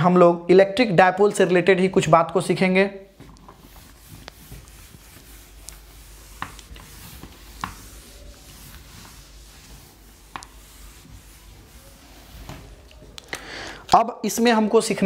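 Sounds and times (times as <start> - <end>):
duster rubbing whiteboard: 3.0 - 13.1.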